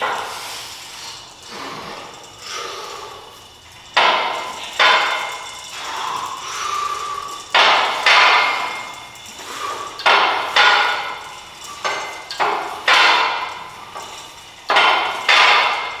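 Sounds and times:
weight plates clanking: 0.0s - 16.0s.

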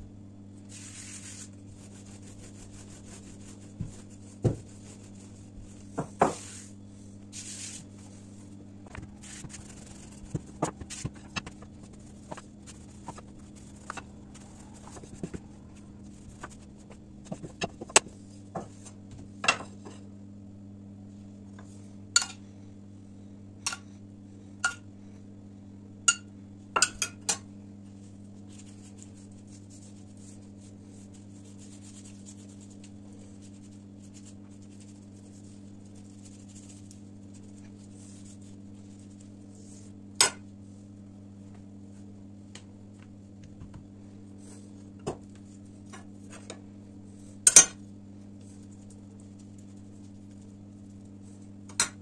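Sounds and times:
steady low hum: 0.0s - 52.0s
pastry brush swishing: 0.7s - 17.5s.

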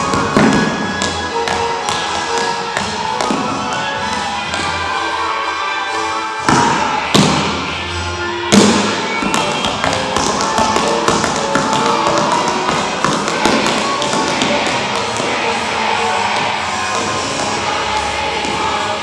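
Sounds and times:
music track: 0.0s - 19.0s
tap shoes on hard floor: 8.5s - 15.4s.

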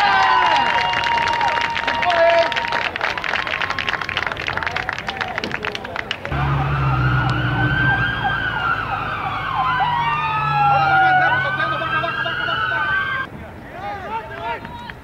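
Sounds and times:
people clapping: 0.0s - 6.6s, 14.2s - 15.0s
sirens wailing: 6.3s - 13.3s.

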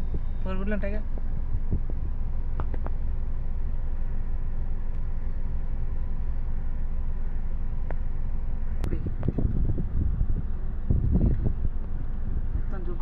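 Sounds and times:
wind buffeting microphone: 0.0s - 3.1s, 8.8s - 13.0s.

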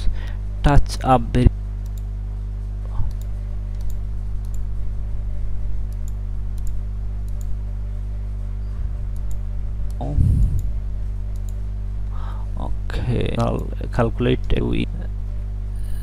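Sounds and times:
steady low hum: 0.0s - 16.0s
computer mouse clicking: 1.8s - 2.1s, 3.0s - 4.7s, 5.9s - 7.6s, 9.1s - 10.0s, 11.3s - 11.6s.

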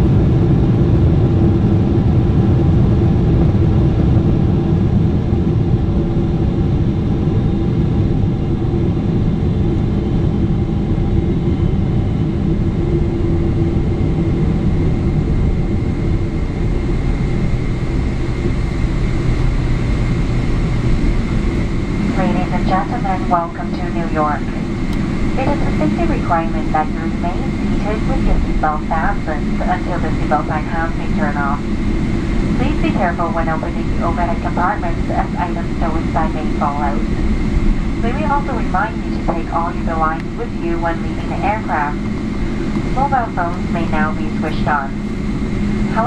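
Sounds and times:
aircraft cabin rumble: 0.0s - 46.0s
faint high whine: 16.5s - 46.0s.

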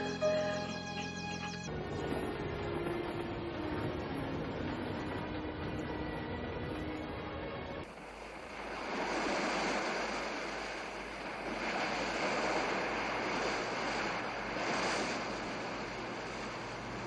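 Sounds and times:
sea waves breaking: 7.9s - 17.0s.

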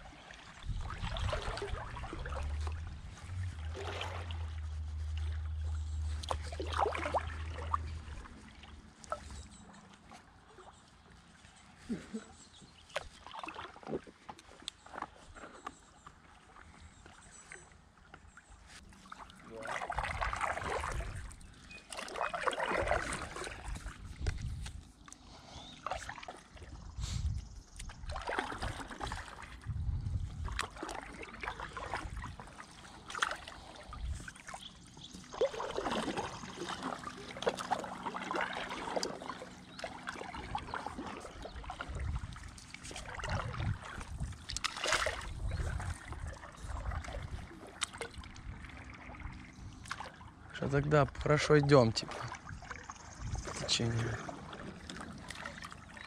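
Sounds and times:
paddle splashing through water: 0.0s - 56.0s
water trickling off paddle: 0.0s - 56.0s
low rumbles: 0.8s - 8.9s.

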